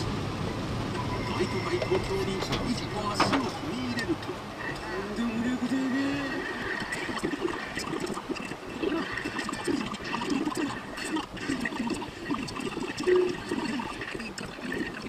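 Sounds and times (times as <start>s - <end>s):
windshield wipers sweeping: 1.7s - 4.4s
heavy rain on car roof: 1.9s - 6.3s.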